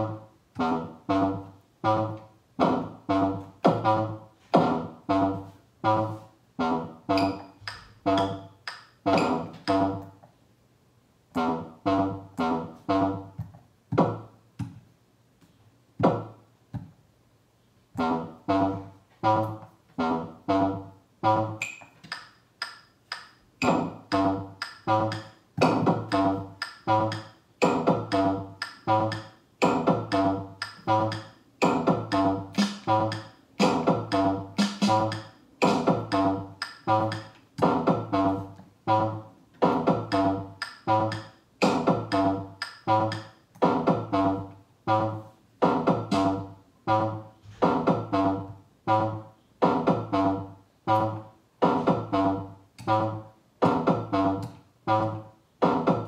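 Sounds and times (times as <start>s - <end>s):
electronic drum machine beat: 1.4s - 4.9s, 7.0s - 10.1s, 13.3s - 14.3s, 16.0s - 16.3s, 21.2s - 56.0s.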